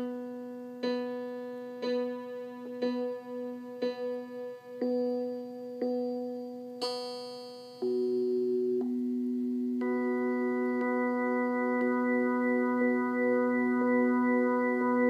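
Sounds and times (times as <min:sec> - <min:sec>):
synthesized organ note: 0:09.8 - 0:15.0.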